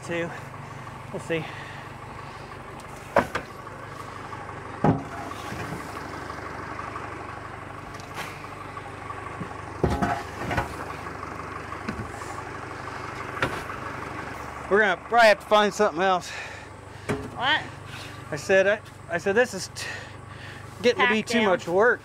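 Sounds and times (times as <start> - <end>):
engine idling: 0.0 - 22.0.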